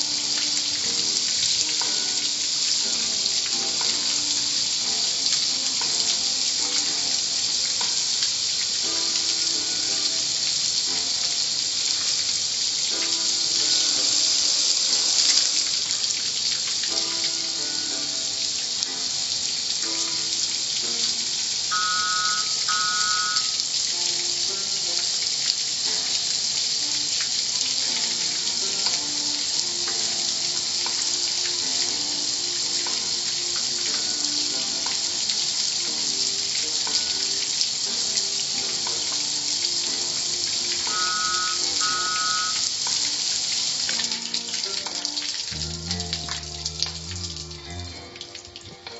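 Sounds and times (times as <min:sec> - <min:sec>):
water spray hissing: 0:45.4 - 0:48.0.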